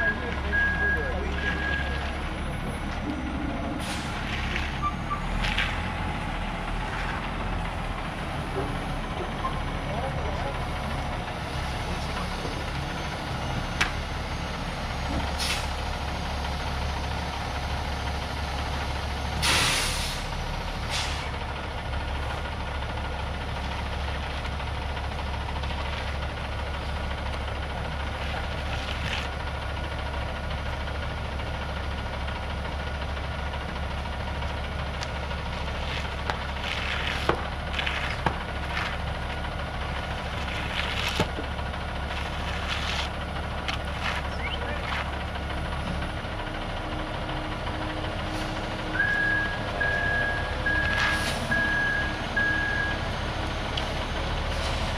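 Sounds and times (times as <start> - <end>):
diesel truck engine running: 0.0 - 54.9
air hiss: 19.4 - 20.3.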